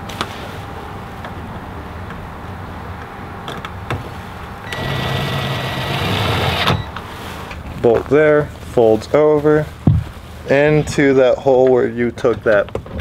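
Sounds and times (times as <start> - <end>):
cordless drill whining: 4.7 - 6.9.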